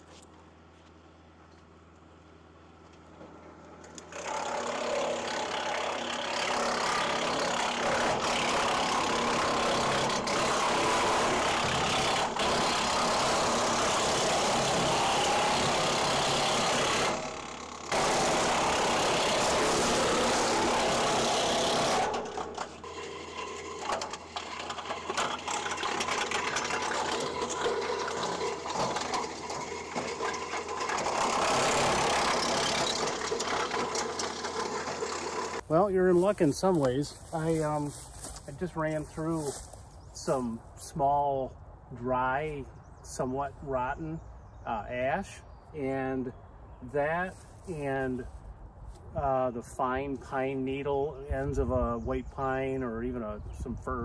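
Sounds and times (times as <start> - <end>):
wood chipper grinding branch: 0.0 - 41.3, 42.2 - 54.0
wood chipper running unevenly: 2.8 - 40.4.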